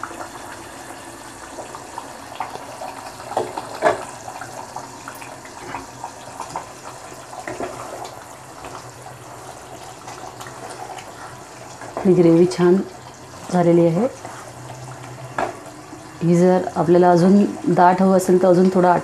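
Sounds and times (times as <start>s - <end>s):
gravy simmering and bubbling: 0.0s - 19.0s
spatula stirring: 13.3s - 15.6s.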